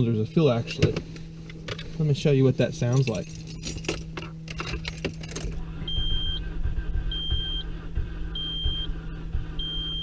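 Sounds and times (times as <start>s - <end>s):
car engine cranking: 0.3s - 10.0s
dashboard warning chime beeping: 5.7s - 10.0s.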